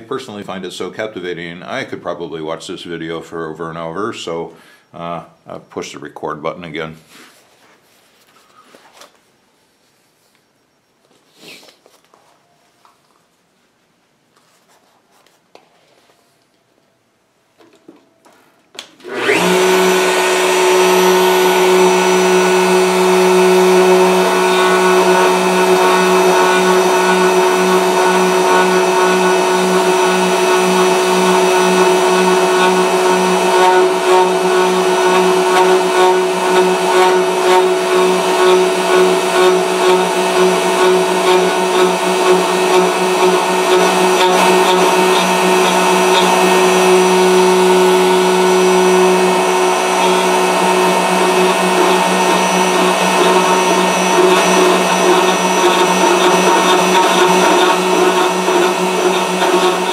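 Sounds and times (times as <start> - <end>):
faint handling sounds: 7.0 - 17.0
router motor whining: 19.0 - 59.9.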